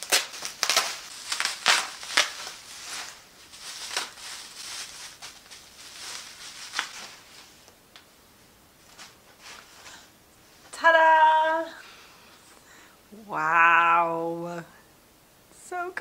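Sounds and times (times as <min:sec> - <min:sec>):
bubble wrap crinkling and rustling: 0:00.0 - 0:08.1, 0:08.7 - 0:10.1.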